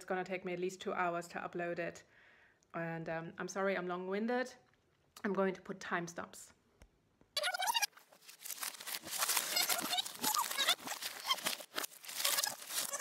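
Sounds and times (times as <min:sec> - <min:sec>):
cardboard crinkling and rustling: 0:07.9 - 0:13.0.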